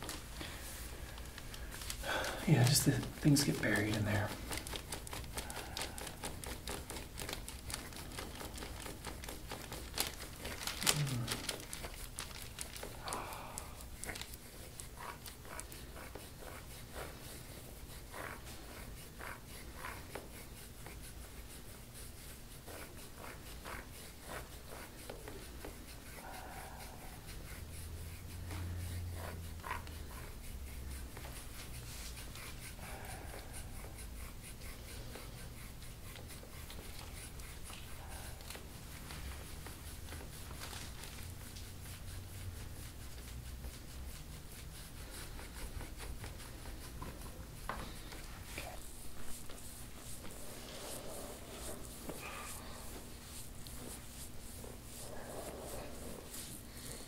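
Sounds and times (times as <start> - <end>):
hands rubbing skin and clothing: 0.0 - 57.0
faint low vocal sounds: 10.8 - 11.6.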